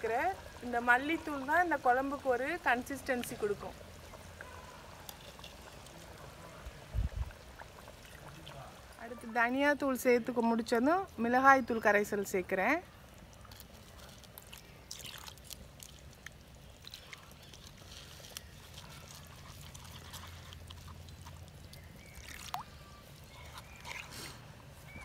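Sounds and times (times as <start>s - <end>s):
water poured into clay pot: 0.0s - 9.2s, 12.9s - 24.3s
fingers mixing wet paste: 13.3s - 24.1s.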